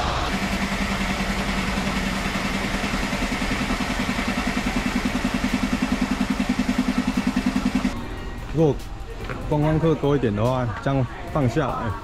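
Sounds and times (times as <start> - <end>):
diesel engine idling: 0.0 - 8.2.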